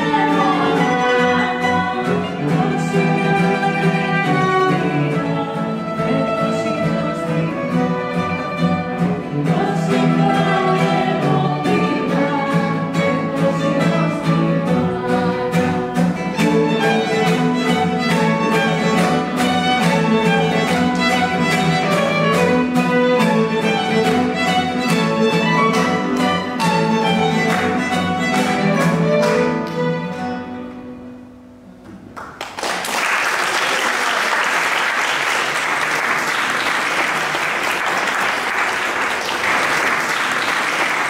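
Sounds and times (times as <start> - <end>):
string ensemble playing: 0.0 - 31.3
audience applauding: 32.1 - 41.0.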